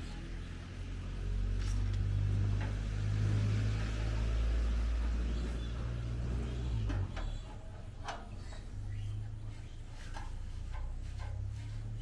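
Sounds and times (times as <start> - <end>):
broom sweeping concrete floor: 8.3 - 12.0.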